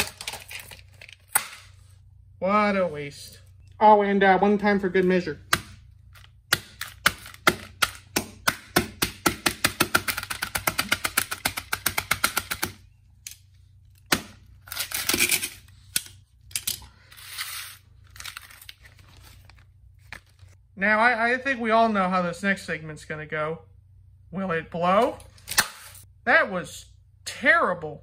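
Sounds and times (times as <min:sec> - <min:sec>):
plastic crackling and rattling: 0:00.0 - 0:01.3
mallet hammering plastic case: 0:06.5 - 0:12.8.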